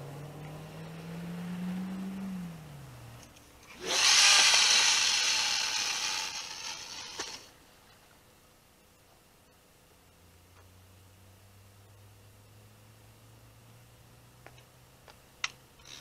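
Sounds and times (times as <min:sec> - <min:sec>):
fishing reel spool whirring: 0:03.8 - 0:07.5, 0:15.8 - 0:16.0.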